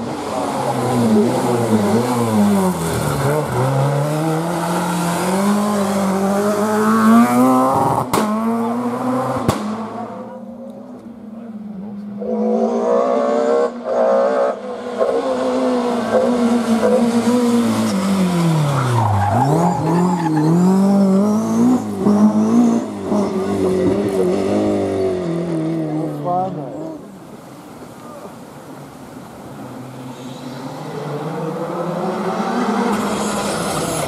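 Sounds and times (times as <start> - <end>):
rally car engine revving: 0.0 - 10.6, 11.5 - 27.1, 30.5 - 34.0
second rally car approaching: 29.5 - 34.0.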